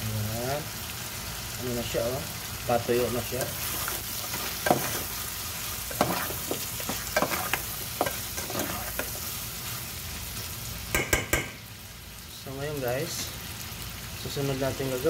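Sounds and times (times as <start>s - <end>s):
chicken sizzling in a pot: 0.0s - 15.0s
metal spoon scraping pot: 5.9s - 9.2s.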